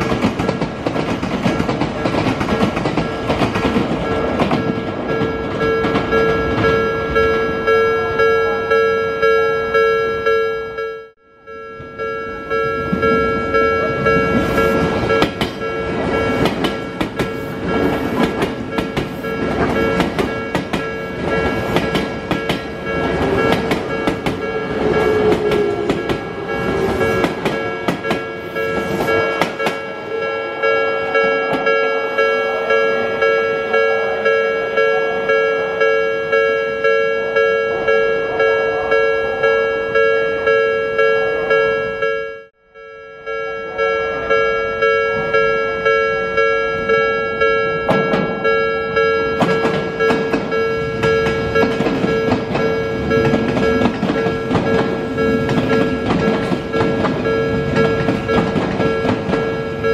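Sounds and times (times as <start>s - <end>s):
train wheels clattering over rail joints: 0.0s - 6.6s, 14.4s - 29.8s, 49.4s - 59.7s
level crossing warning bell: 0.0s - 59.9s.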